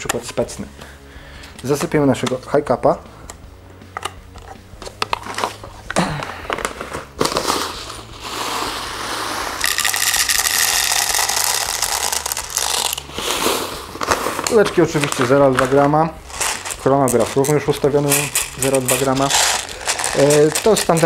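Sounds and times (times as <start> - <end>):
plastic pellets pouring: 7.2 - 21.0
foil bag crinkling: 9.6 - 13.1, 14.4 - 21.0.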